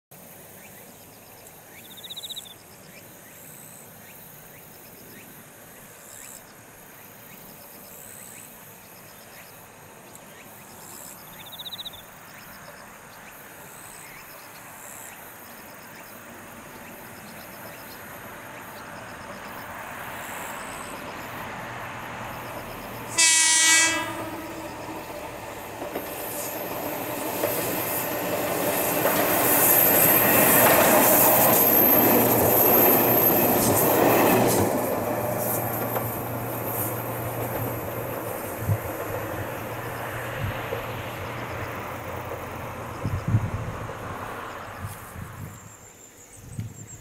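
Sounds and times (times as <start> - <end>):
electric train running noise: 18.0 - 44.8
train horn blast: 23.1 - 24.9.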